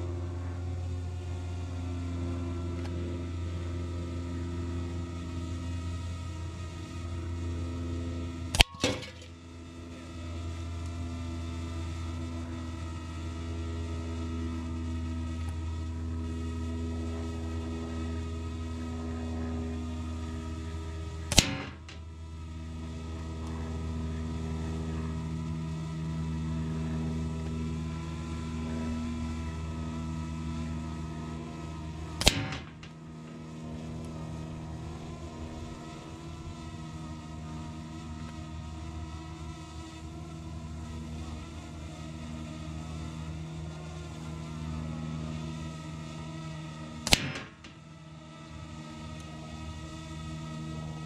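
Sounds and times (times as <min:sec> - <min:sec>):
steady engine hum: 0:00.0 - 0:51.0
steady low drone: 0:00.0 - 0:51.0
air rifle shot: 0:08.6 - 0:09.2, 0:21.3 - 0:22.0, 0:32.2 - 0:32.9, 0:47.0 - 0:47.8.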